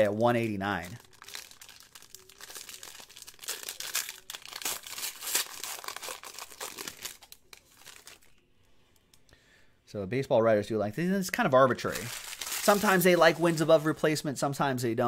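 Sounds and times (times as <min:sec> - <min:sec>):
foil wrapper crinkling: 0:00.3 - 0:08.4, 0:11.8 - 0:14.1.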